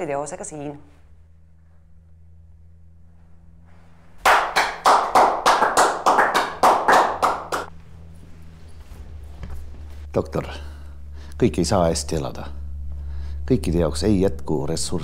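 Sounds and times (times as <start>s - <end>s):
person clapping hands: 4.2s - 7.7s.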